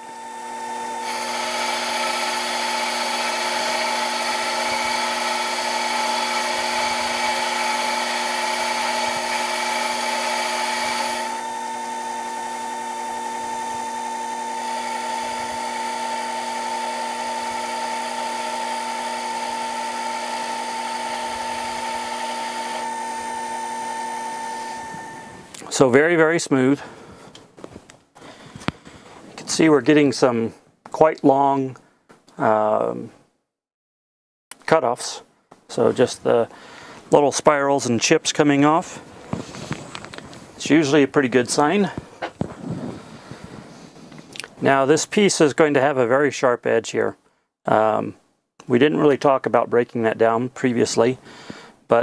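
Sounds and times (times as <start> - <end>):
lathe motor whine: 0.0 - 25.5
hiss of lathe cutting: 1.0 - 25.4.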